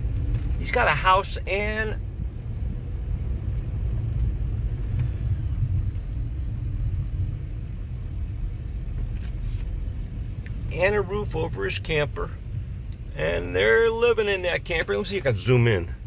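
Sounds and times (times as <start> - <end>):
truck engine rumble: 0.0 - 16.0.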